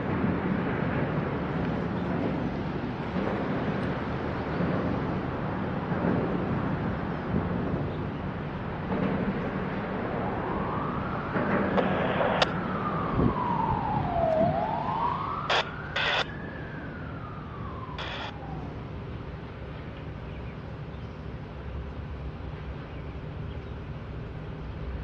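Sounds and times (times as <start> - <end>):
emergency siren wailing: 8.6 - 19.6.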